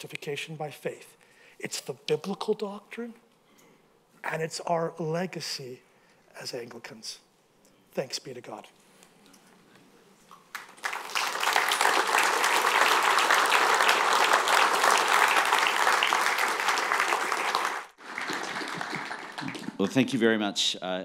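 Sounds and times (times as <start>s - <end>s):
audience applauding: 10.5s - 20.0s.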